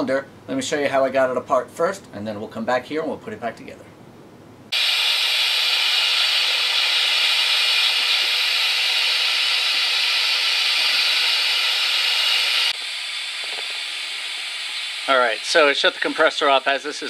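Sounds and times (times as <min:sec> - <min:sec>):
air bubbling at leak: 0:04.7 - 0:16.7
compressed air hissing: 0:04.7 - 0:17.0.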